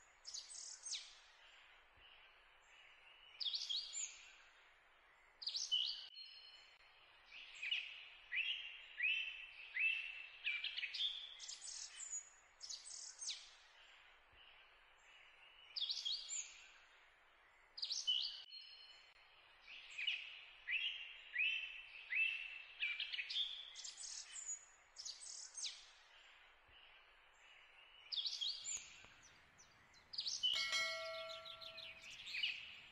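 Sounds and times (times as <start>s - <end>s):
bird chirps and whistled calls: 30.1s - 32.9s.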